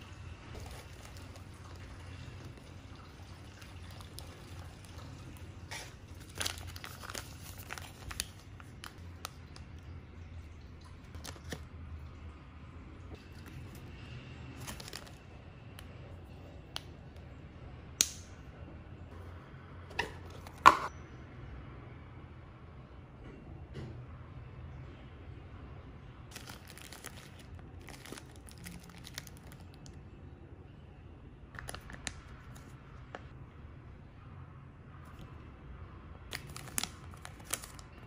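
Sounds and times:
plastic wrap crinkling: 0:00.5 - 0:01.8, 0:03.8 - 0:09.6, 0:14.5 - 0:15.3, 0:26.3 - 0:30.0, 0:31.6 - 0:33.3, 0:36.3 - 0:38.0.

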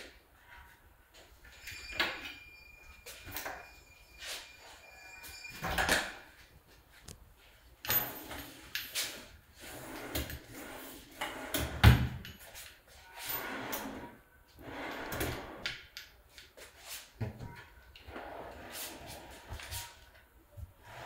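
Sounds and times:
drawers sliding on runners: 0:13.2 - 0:15.7.

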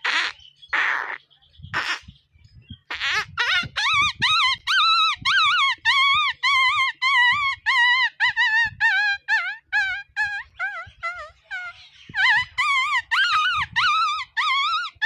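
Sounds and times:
man imitating puppy whimpering: 0:03.4 - 0:15.0.

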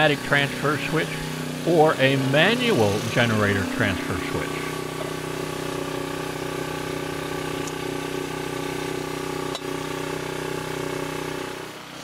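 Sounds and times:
generator engine humming: 0:00.0 - 0:12.0.

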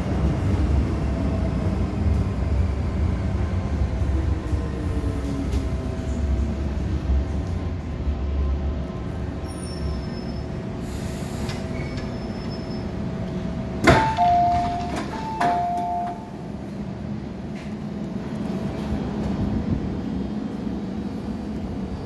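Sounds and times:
stationary train hum: 0:00.0 - 0:22.0
train doors unlocking clunk: 0:13.8 - 0:16.4.

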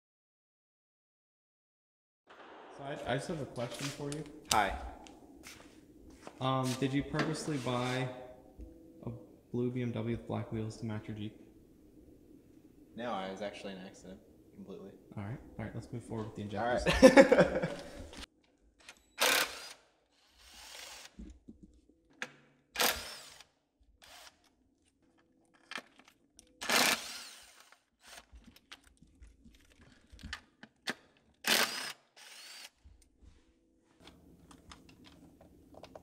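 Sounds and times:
cordless drill spinning: 0:19.2 - 0:21.2, 0:22.8 - 0:24.4, 0:26.6 - 0:28.4, 0:31.4 - 0:32.8.

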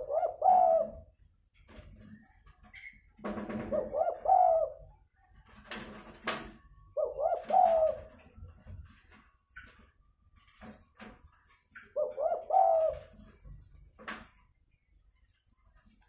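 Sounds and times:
dove cooing: 0:00.0 - 0:01.2, 0:03.5 - 0:05.1, 0:06.8 - 0:09.0, 0:11.7 - 0:13.5.

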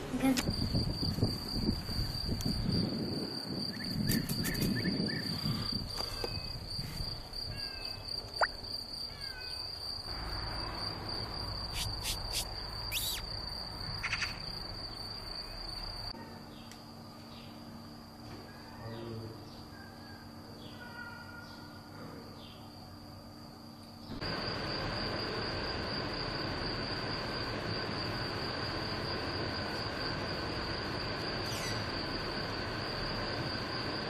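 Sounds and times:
high-pitched insect buzz: 0:00.1 - 0:16.1, 0:27.9 - 0:34.0
descending bird chirps: 0:12.0 - 0:13.3.

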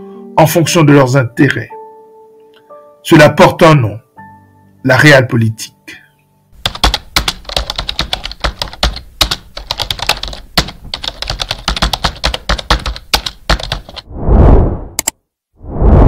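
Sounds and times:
keyboard typing: 0:06.6 - 0:14.0, 0:15.0 - 0:15.2
whoosh transition: 0:14.0 - 0:16.0.

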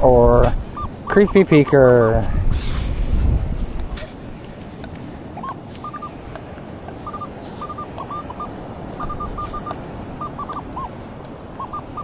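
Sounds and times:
metal detector beeps: 0:00.4 - 0:01.8, 0:05.4 - 0:06.2, 0:06.9 - 0:10.9, 0:11.6 - 0:12.0.

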